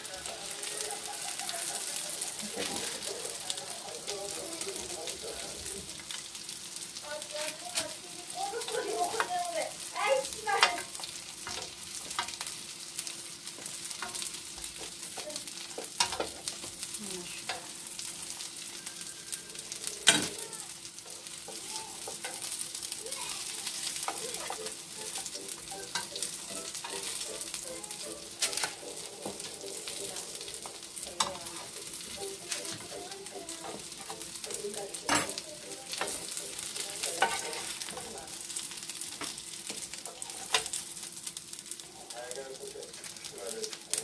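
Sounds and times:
patties sizzling in oil: 0:00.0 - 0:44.0
spatula scraping and tapping pan: 0:07.7 - 0:09.4, 0:10.5 - 0:12.6, 0:13.5 - 0:16.8, 0:21.0 - 0:22.7, 0:23.4 - 0:38.4, 0:39.0 - 0:40.9.

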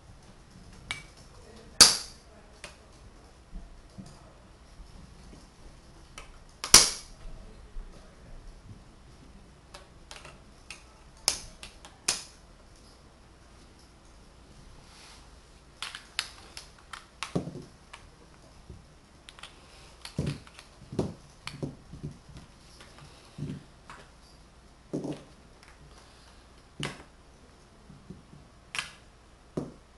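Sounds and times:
wooden blocks clicking together: 0:06.2 - 0:07.1, 0:09.7 - 0:12.4, 0:15.8 - 0:18.5, 0:19.2 - 0:21.8, 0:28.7 - 0:29.8.

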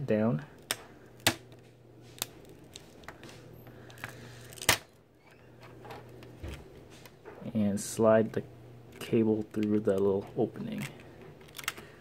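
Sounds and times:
low steady hum: 0:00.0 - 0:12.0
ribbon cable peeling clicks: 0:10.7 - 0:11.9.

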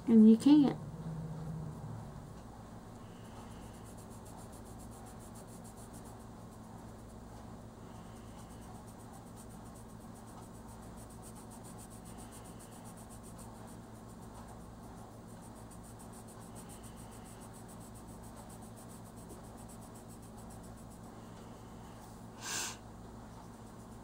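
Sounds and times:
steady low hum: 0:00.0 - 0:24.0
pencil scratching on paper: 0:03.0 - 0:07.2, 0:07.8 - 0:21.9, 0:23.2 - 0:24.0.

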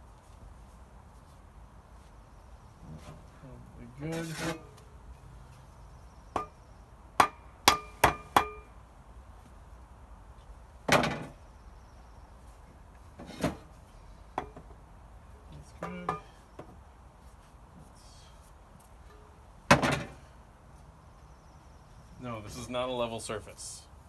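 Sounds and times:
hand hammer striking: 0:07.2 - 0:08.7.

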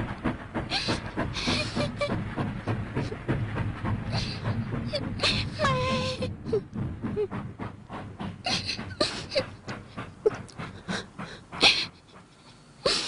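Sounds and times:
girl sobbing: 0:04.2 - 0:06.7.

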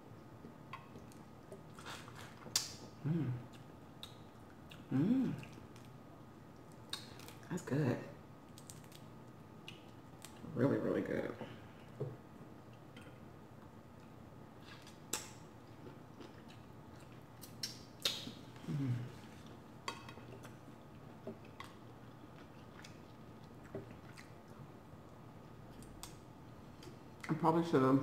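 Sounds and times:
chewing with crunches: 0:00.1 - 0:07.5, 0:12.6 - 0:27.3.

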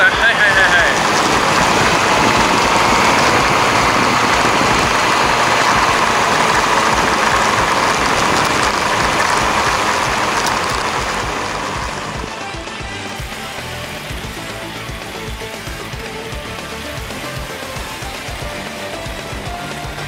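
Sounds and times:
wind rushing over microphone: 0:00.0 - 0:12.4
motorcycle running: 0:00.0 - 0:20.0.

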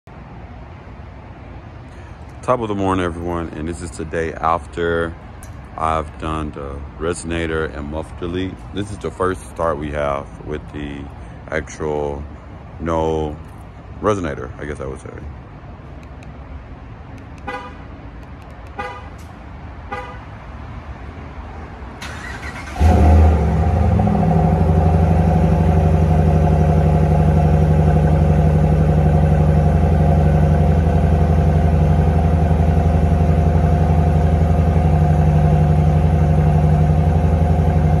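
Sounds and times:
truck engine starting and idling: 0:21.9 - 0:38.0.

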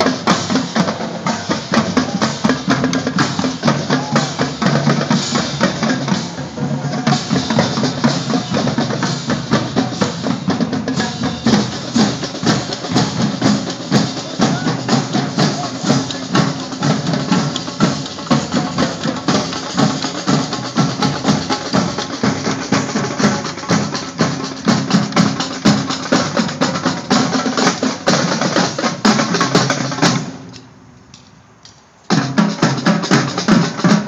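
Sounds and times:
marching drumline playing: 0:00.0 - 0:30.6, 0:32.1 - 0:34.0.

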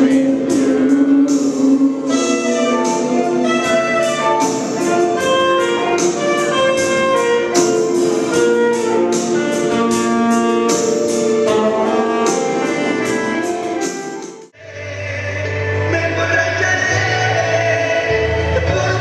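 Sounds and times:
saxophone melody: 0:00.0 - 0:14.6
backing track with steady beat: 0:00.0 - 0:19.0.

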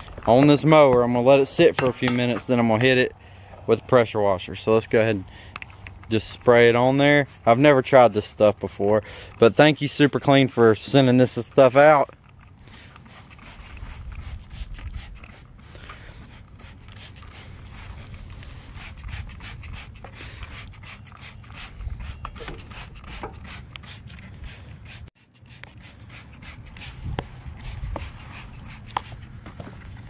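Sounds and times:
spray bottle spritzing: 0:12.6 - 0:29.4.

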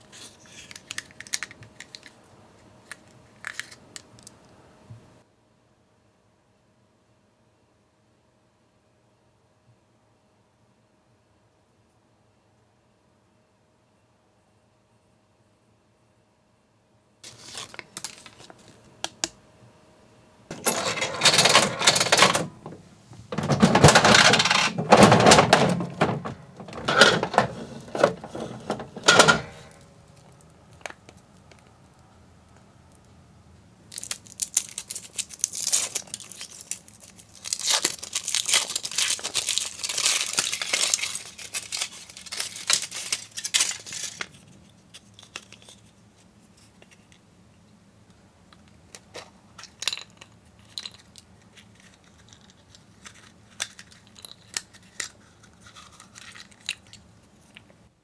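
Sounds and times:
paper and foil crinkling: 0:17.2 - 0:18.9, 0:33.9 - 0:46.7, 0:50.6 - 0:57.6.

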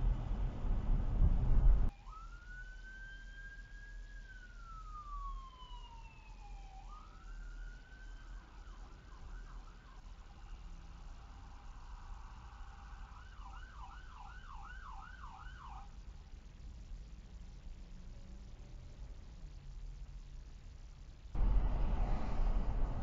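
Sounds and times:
car road rumble: 0:00.0 - 0:01.9, 0:16.0 - 0:23.0
emergency vehicle siren wailing: 0:01.9 - 0:16.0.

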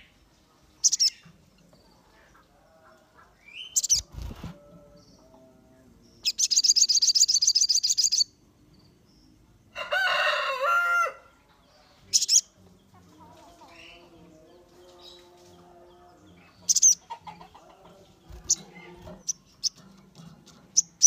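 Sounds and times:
songbird trilling: 0:00.8 - 0:01.2, 0:03.4 - 0:04.1, 0:06.2 - 0:08.3, 0:12.1 - 0:12.5, 0:16.5 - 0:17.6
rooster crowing: 0:09.7 - 0:11.4.

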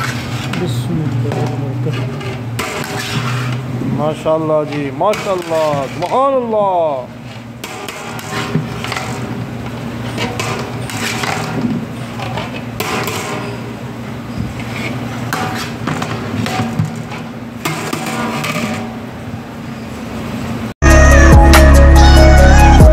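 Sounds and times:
metal ladle scraping metal pot: 0:00.0 - 0:06.6, 0:07.2 - 0:09.4, 0:10.0 - 0:13.7, 0:14.5 - 0:18.9.

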